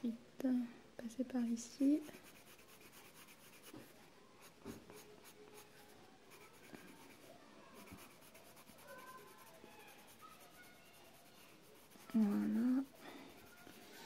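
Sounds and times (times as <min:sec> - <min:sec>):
colored pencil scratching on paper: 0:01.7 - 0:14.0.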